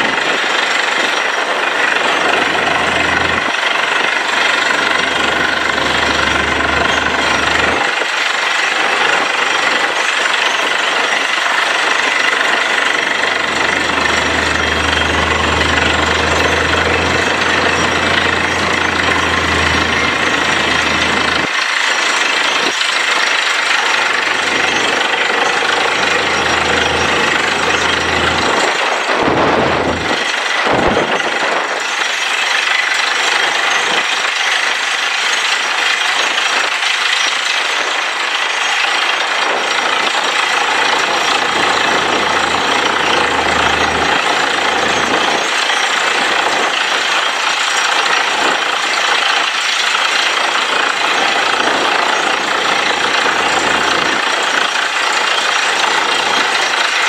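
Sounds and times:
drilling rig machinery noise: 0:00.0 - 0:57.0
low engine hum: 0:02.0 - 0:03.6, 0:04.4 - 0:07.9, 0:12.7 - 0:21.5, 0:24.0 - 0:30.2, 0:40.6 - 0:45.4.

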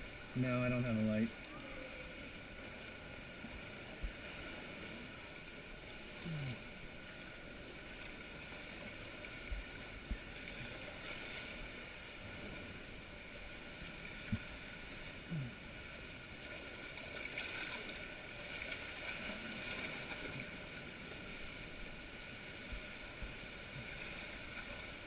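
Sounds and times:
water sloshing around kayak: 0:01.3 - 0:25.0.

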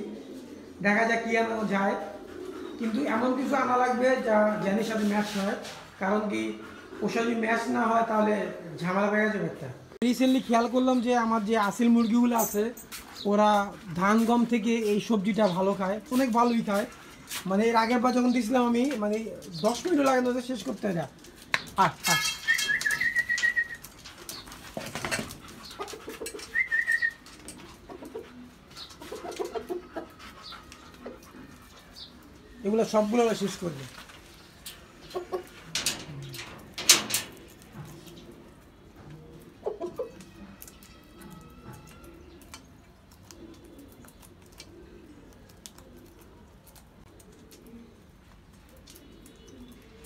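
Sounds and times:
pigeons cooing: 0:00.0 - 0:12.4, 0:13.2 - 0:50.0
chickens pecking from steel bowl: 0:18.8 - 0:31.7, 0:33.9 - 0:50.0.

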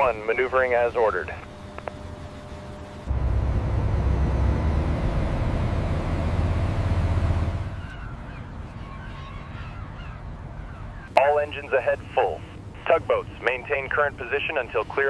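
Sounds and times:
large ship rumbling: 0:03.1 - 0:15.0
gulls calling faintly: 0:07.6 - 0:15.0.

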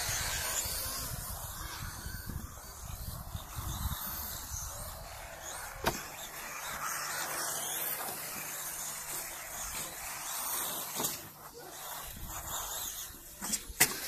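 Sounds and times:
radio-controlled car motor hissing: 0:00.0 - 0:14.0.

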